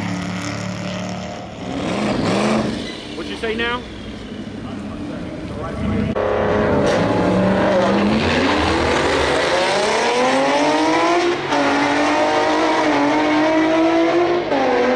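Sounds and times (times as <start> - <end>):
car engine accelerating hard: 5.6 - 14.9.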